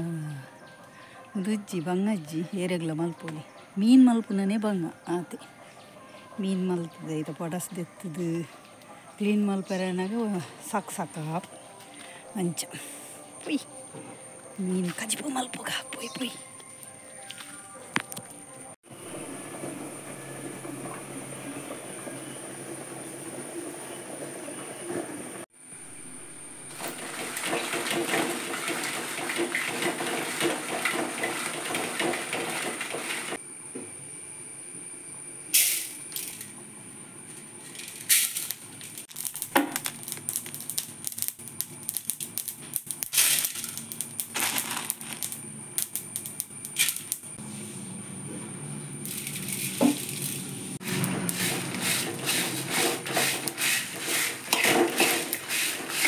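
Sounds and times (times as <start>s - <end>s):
spices stirred in a pan: 25.9s - 33.4s, 49.0s - 56.0s.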